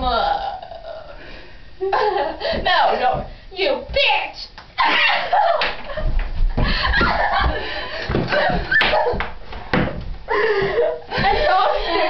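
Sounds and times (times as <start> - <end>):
thuds of people scuffling: 5.7 - 12.0
sharp knocks: 6.0 - 11.3.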